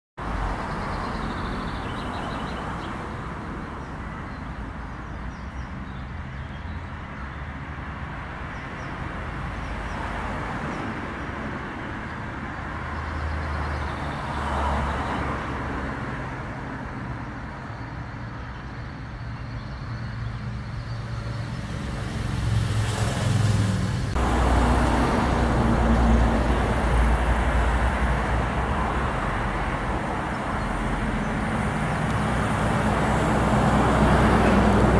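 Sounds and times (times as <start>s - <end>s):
road traffic rumble: 0.2s - 34.9s
vehicle passing: 20.1s - 34.9s.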